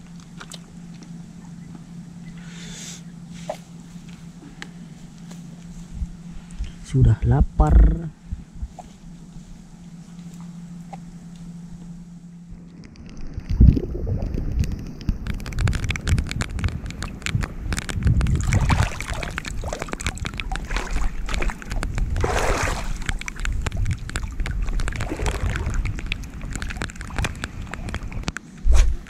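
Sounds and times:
seawater sloshing and splashing: 0.0 - 1.5, 12.6 - 28.4.

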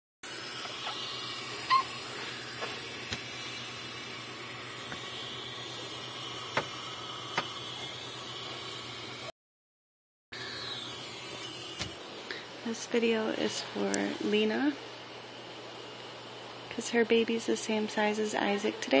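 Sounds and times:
airy hiss of air flow: 0.3 - 9.3
brief high squeak: 1.7 - 1.9.

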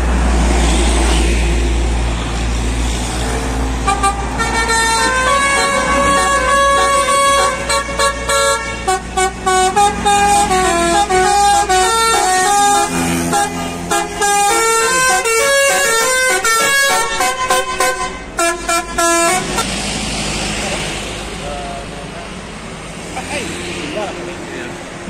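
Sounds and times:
bus engine rumbling: 0.0 - 25.0
musical air horn tune: 3.8 - 19.6.

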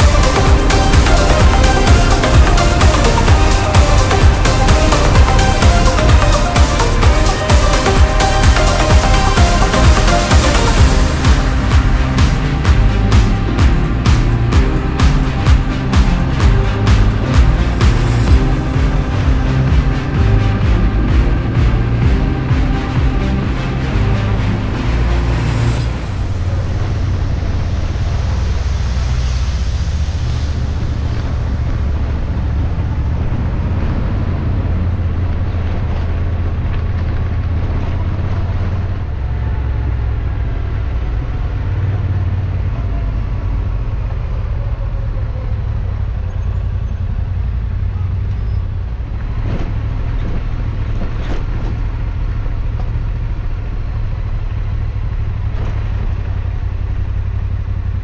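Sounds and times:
motorcycle engine running: 0.0 - 58.0
wind and road noise: 0.0 - 58.0.

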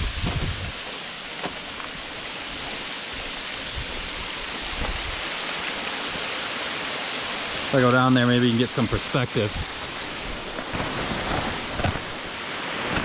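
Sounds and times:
water falling onto rocks: 0.0 - 13.0.

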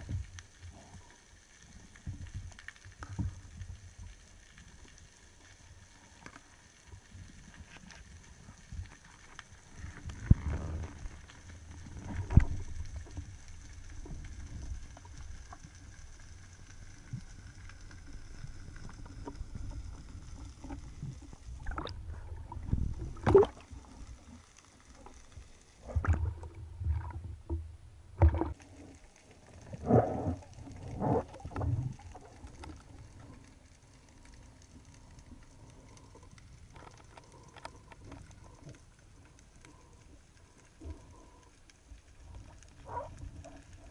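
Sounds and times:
water splashing and sloshing: 0.0 - 43.9
dull underwater thumps: 23.1 - 23.6, 25.9 - 28.6.

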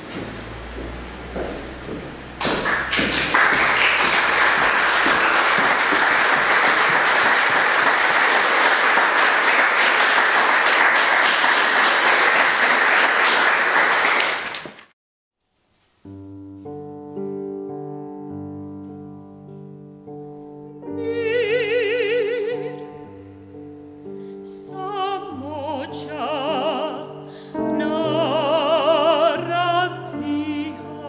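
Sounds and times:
audience applauding: 2.4 - 14.9.

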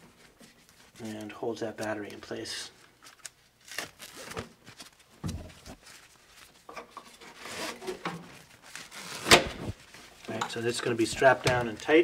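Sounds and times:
strap rustling: 0.0 - 12.0.

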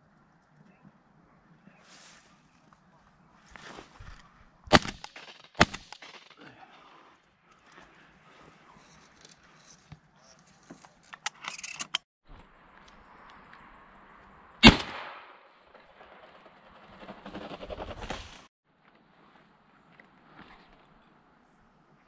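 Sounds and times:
rustling: 1.8 - 6.4
shotgun shot: 4.7 - 6.4, 14.6 - 15.4.

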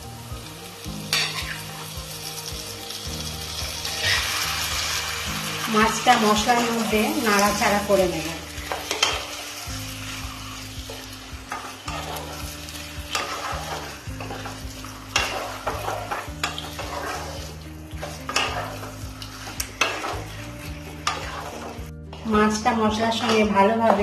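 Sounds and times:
food frying in oil: 0.0 - 24.0
spatula scraping and knocking pan: 1.1 - 1.8, 5.8 - 9.4, 10.1 - 22.3, 22.9 - 24.0.

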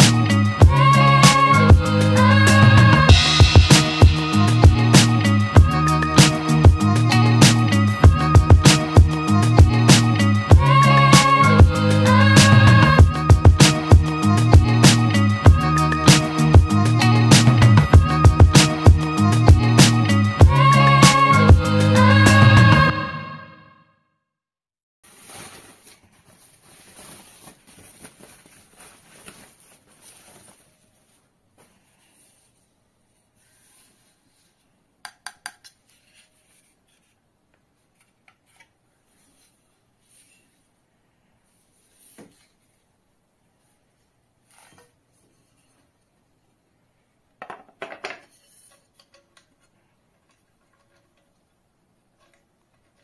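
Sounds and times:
plastic wrapping crinkling: 25.0 - 31.3.

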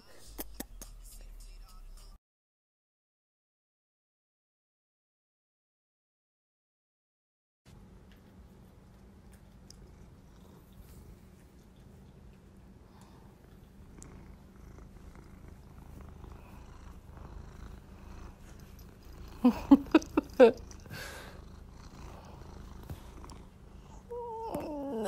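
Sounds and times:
cat purring: 8.7 - 25.0.

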